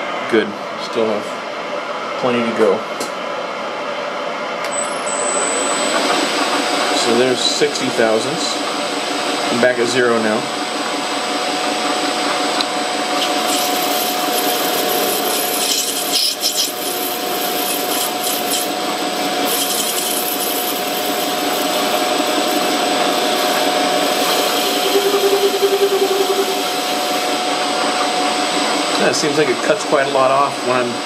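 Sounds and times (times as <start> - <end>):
metal lathe whining: 10.4 - 29.3
brief hum: 24.2 - 27.3.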